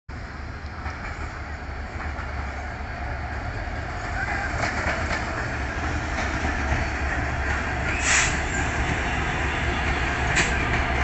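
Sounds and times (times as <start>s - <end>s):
diesel locomotive engine rumble: 0.1s - 11.0s
train wheels clacking: 4.4s - 11.0s.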